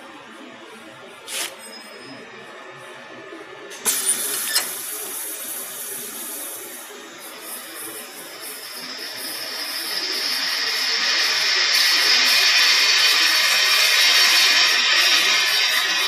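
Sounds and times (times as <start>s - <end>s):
high-pitched drilling noise: 3.9s - 16.0s.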